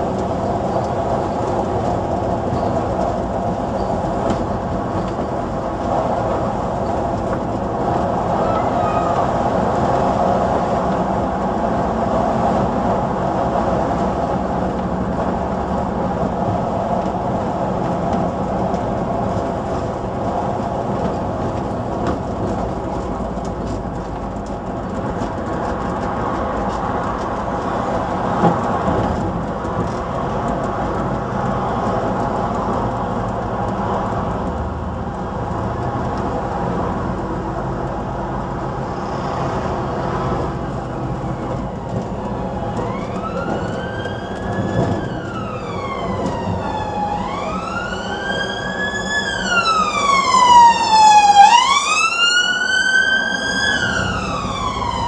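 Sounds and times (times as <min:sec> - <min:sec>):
bus diesel engine running: 0:00.0 - 0:55.0
ambulance siren wailing: 0:08.0 - 0:10.0, 0:41.2 - 0:55.0.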